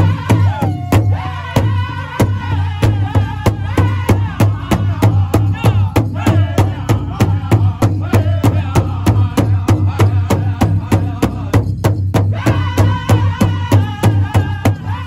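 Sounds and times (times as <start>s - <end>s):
large drum beating: 0.0s - 15.0s
men singing high wavering: 0.0s - 15.0s.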